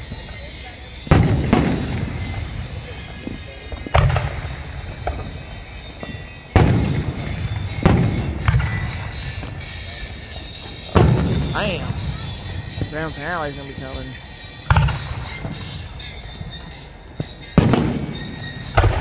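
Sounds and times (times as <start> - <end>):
firework shells booming: 1.1 - 2.9, 3.8 - 9.6, 10.9 - 13.6, 14.6 - 15.8, 17.3 - 19.0.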